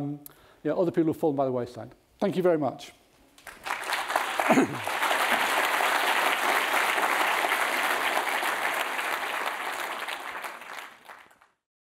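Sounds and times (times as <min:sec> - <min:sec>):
audience applauding: 0:03.4 - 0:11.6.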